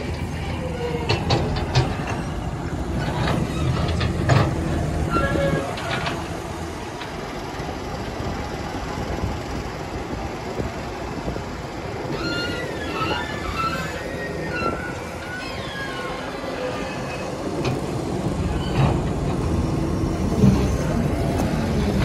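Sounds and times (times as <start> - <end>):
excavator diesel engine running: 0.0 - 22.0
high metallic squeals: 5.0 - 6.1, 12.0 - 17.5.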